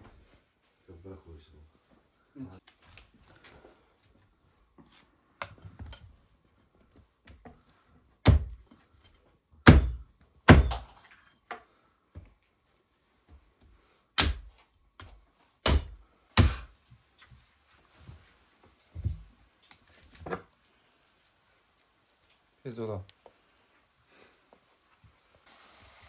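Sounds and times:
cleaver chopping on wooden block: 8.2s - 8.6s, 9.6s - 10.9s, 14.2s - 16.7s.

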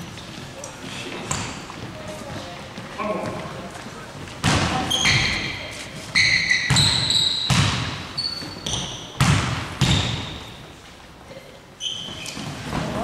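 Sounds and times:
sneakers squeaking: 0.0s - 3.6s, 4.2s - 11.0s, 11.7s - 13.0s
basketball bouncing on court: 4.4s - 5.5s, 6.2s - 10.6s.

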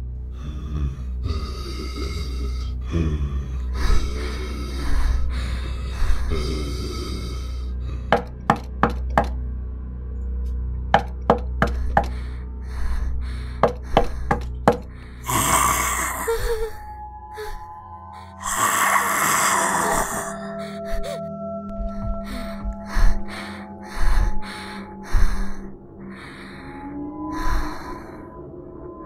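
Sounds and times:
low droning horror music: 0.0s - 29.0s
sharp knocks: 8.1s - 9.4s, 11.0s - 12.1s, 13.6s - 14.9s.

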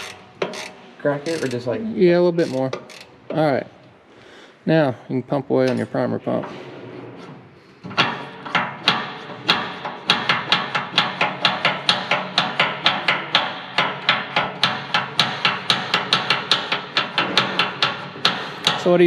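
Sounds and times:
hand pump clacking: 0.0s - 1.7s, 8.0s - 19.0s.

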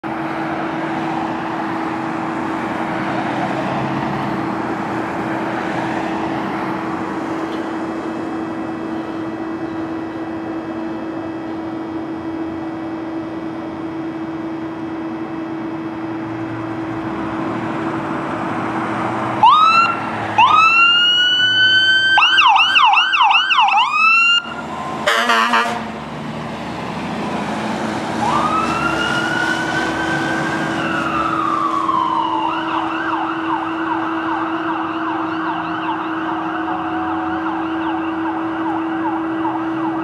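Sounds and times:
street traffic noise: 0.0s - 40.0s
car driving past: 0.3s - 8.1s, 24.5s - 32.3s.

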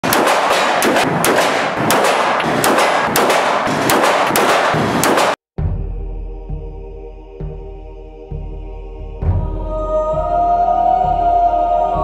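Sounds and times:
rapid handgun fire: 0.0s - 5.4s
music: 5.6s - 12.0s.

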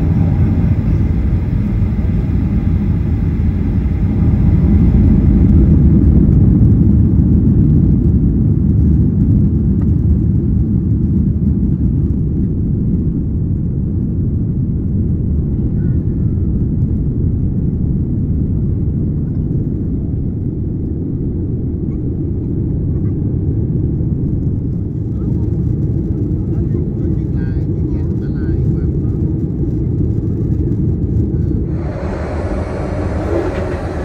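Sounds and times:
wheels on runway: 0.0s - 7.2s, 31.5s - 34.0s
jet engines rumbling: 0.0s - 34.0s.

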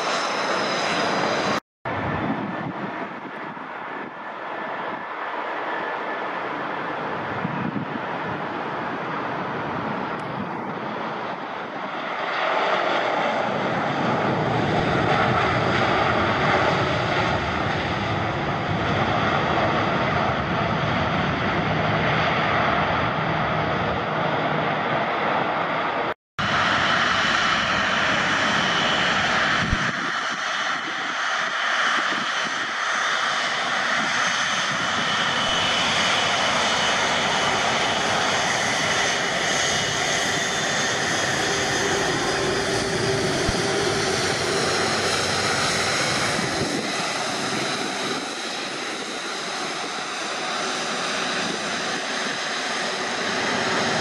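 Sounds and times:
jet engines running loudly: 0.0s - 54.0s
high engine whine: 33.0s - 54.0s.

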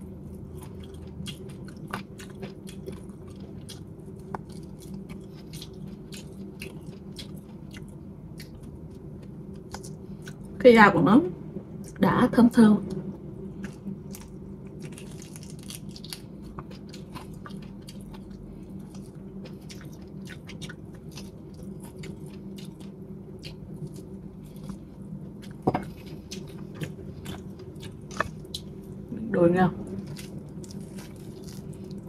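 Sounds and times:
steady low hum: 0.0s - 32.0s
biting and chewing: 13.6s - 28.8s, 29.9s - 32.0s.

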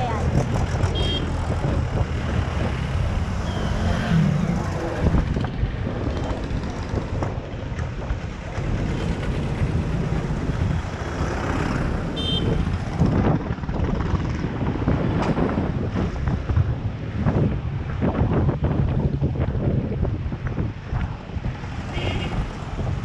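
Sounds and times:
scooter rumble: 0.0s - 16.7s
street traffic: 0.0s - 23.0s
wind buffeting microphone: 0.0s - 23.0s.

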